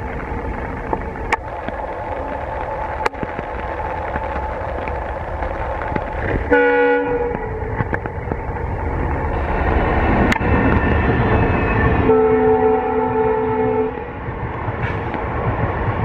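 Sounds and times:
rain hissing: 0.0s - 11.0s
train engine rumble: 0.0s - 16.0s
locomotive air horn blast: 6.4s - 7.7s, 11.9s - 14.2s.

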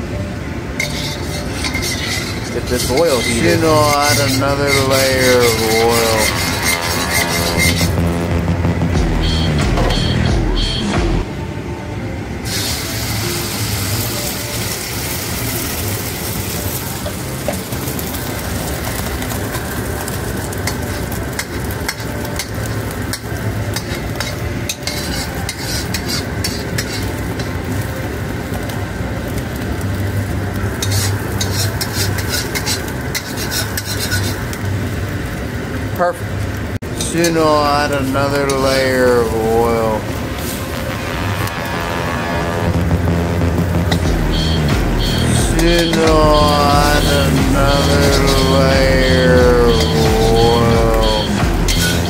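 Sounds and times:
oil and egg sizzling in wok: 0.0s - 8.3s, 12.4s - 50.0s, 50.9s - 52.0s
metal spatula scraping wok: 0.8s - 8.2s, 20.6s - 27.6s, 30.8s - 34.5s, 43.8s - 52.0s
low rumble: 6.2s - 11.3s, 40.1s - 52.0s.

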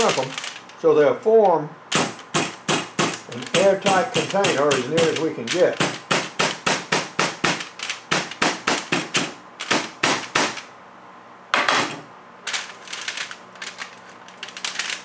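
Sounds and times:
foil crinkling: 0.0s - 0.8s, 3.1s - 5.8s, 12.5s - 15.0s.

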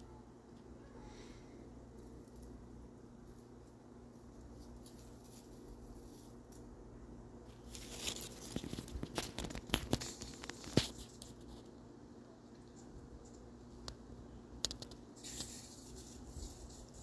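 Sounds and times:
animal rustling in dry leaves: 4.1s - 6.6s, 7.6s - 11.7s, 15.2s - 17.0s.

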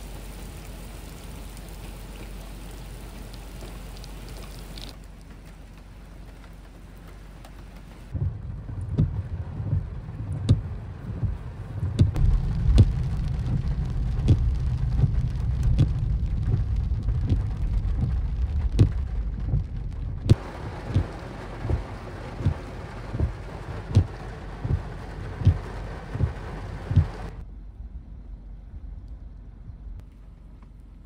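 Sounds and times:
rain hiss on moving vehicle: 0.0s - 27.4s
steady rain falling: 0.0s - 27.4s
deep low rumble: 8.1s - 30.0s.

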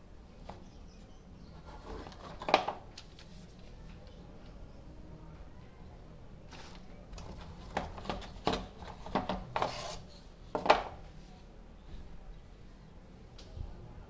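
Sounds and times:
cardboard scraping and rustling: 1.6s - 3.6s, 6.5s - 10.1s.

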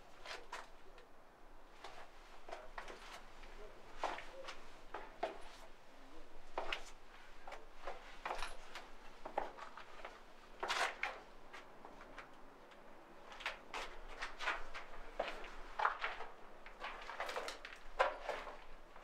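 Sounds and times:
footsteps scuffing on stone floor: 13.8s - 19.0s.

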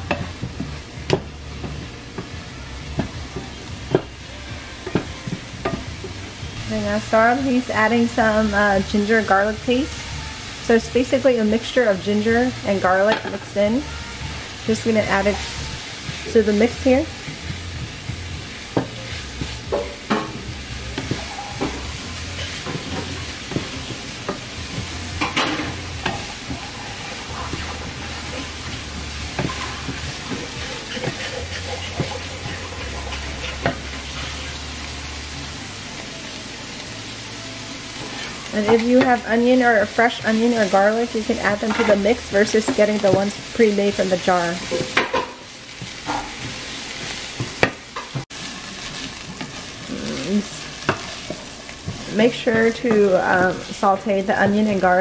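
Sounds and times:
onions sizzling in oil: 0.0s - 55.0s
wooden spatula knocking on pan: 4.8s - 6.0s, 28.9s - 31.3s
spatula scraping pan: 11.5s - 34.7s, 37.9s - 55.0s.

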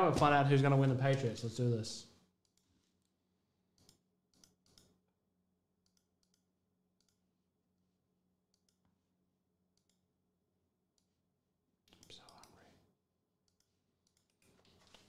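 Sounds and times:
computer mouse clicks: 2.4s - 3.1s, 3.8s - 5.0s, 5.8s - 7.2s, 8.5s - 8.8s, 9.8s - 10.0s, 11.9s - 12.6s, 13.4s - 15.0s.

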